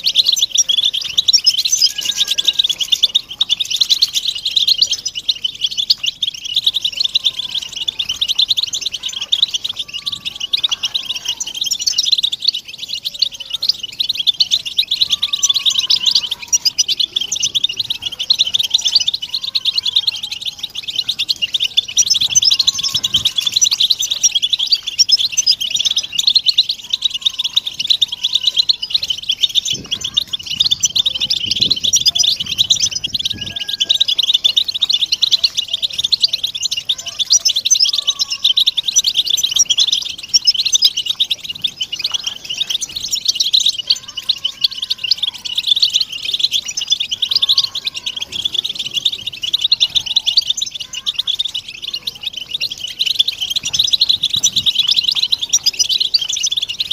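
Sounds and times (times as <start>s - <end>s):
flock of finches twittering: 0.0s - 56.9s.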